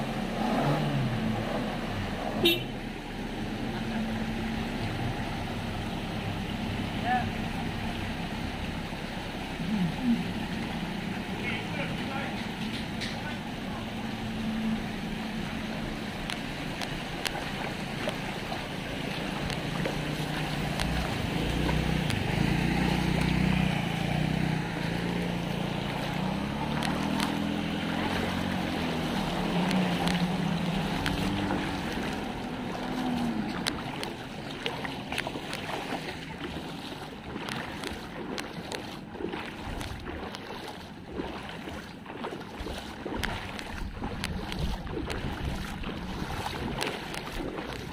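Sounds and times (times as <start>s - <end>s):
van engine running: 0.0s - 47.9s
water sloshing: 0.0s - 47.9s
wheels splashing through water: 0.0s - 47.9s
wind buffeting microphone: 42.5s - 47.9s.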